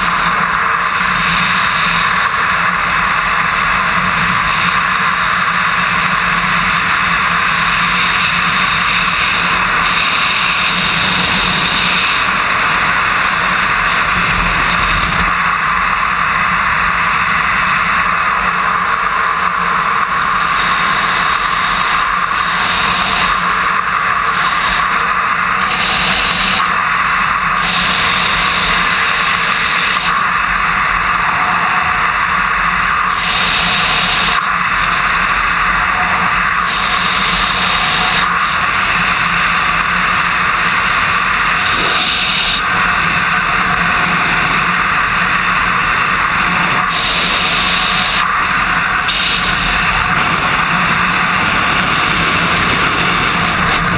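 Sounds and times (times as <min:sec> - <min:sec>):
wind rushing over microphone: 0:33.0 - 0:53.9.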